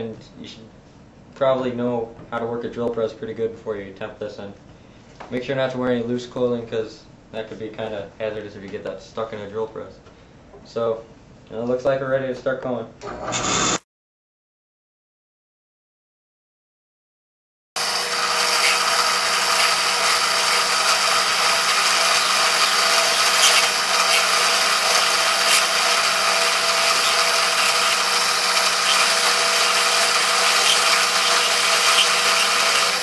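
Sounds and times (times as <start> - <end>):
drill press cutting plastic: 13.0 - 13.8, 17.8 - 33.0.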